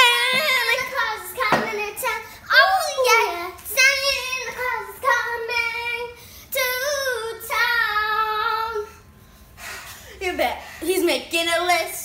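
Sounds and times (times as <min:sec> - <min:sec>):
girl singing: 0:00.0 - 0:09.0.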